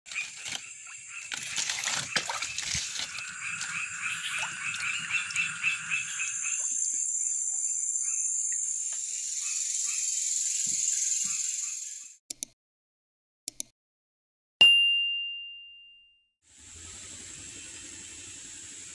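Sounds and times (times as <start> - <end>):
frogs calling in pulses: 0.1 - 10.2
high-pitched insect trill: 0.2 - 12.1.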